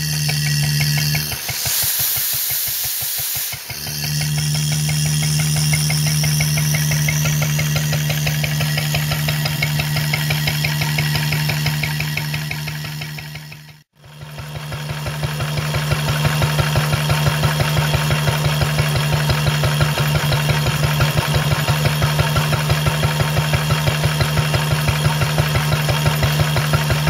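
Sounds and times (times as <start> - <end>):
air hissing: 0.0 - 12.5
stationary engine running: 0.0 - 27.0.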